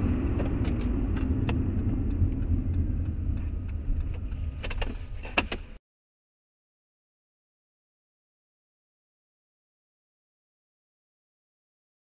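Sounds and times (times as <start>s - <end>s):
car engine rumble: 0.0s - 5.8s
road noise: 0.0s - 5.8s
light clicks and rattles: 0.4s - 5.8s.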